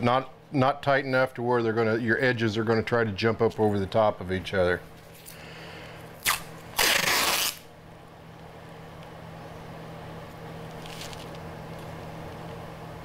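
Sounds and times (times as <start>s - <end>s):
steady low hum: 0.0s - 13.0s
masking tape tearing: 6.2s - 7.7s.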